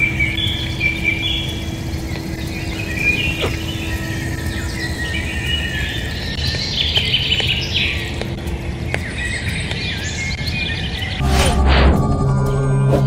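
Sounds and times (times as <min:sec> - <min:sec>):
birds chirping: 0:00.0 - 0:11.2
steady low rumble: 0:00.0 - 0:13.0
short whoosh: 0:11.2 - 0:13.0.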